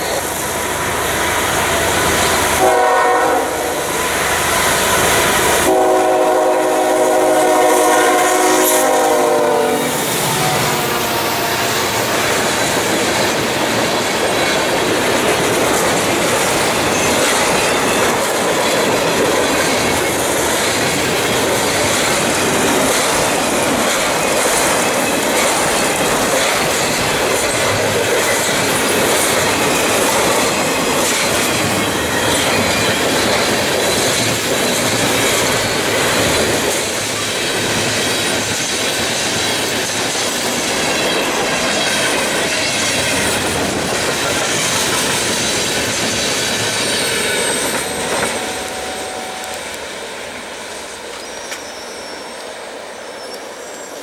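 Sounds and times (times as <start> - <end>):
train air horn: 2.6 - 4.0, 5.6 - 12.2, 47.1 - 49.8
freight train wheels clattering: 3.9 - 49.8.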